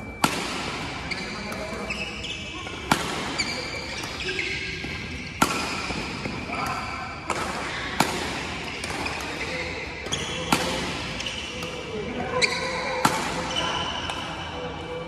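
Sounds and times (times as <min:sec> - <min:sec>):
court shoes squeaking: 0:00.0 - 0:15.0
racquet striking shuttlecock: 0:00.1 - 0:02.1, 0:02.7 - 0:12.0.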